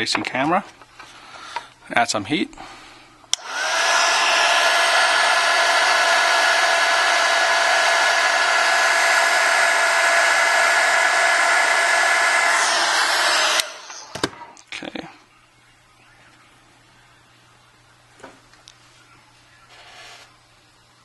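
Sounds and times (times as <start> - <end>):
hot-air blower whining: 2.6 - 14.7
hot-air blower switch click: 3.3 - 6.2, 7.2 - 14.4.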